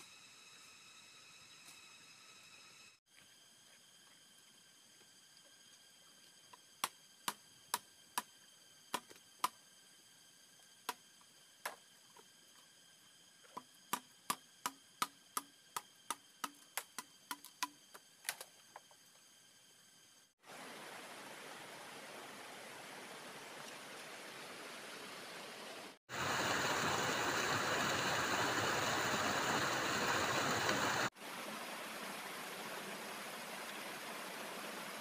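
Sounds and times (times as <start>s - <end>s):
faint high whine: 0.0s - 24.0s
stream water rushing: 20.4s - 35.0s.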